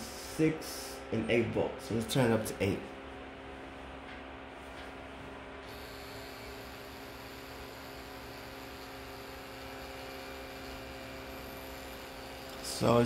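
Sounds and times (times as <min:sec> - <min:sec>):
tattoo machine motor hum: 0:05.6 - 0:13.0.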